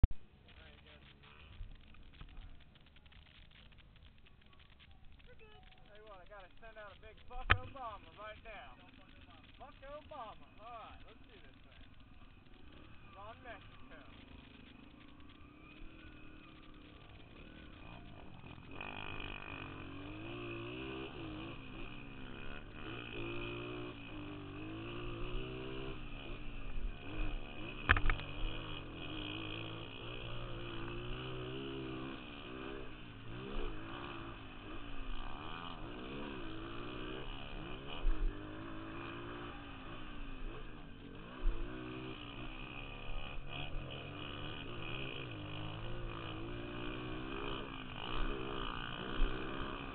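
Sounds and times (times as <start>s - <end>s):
dirt bike engine revving: 0.4s - 49.9s.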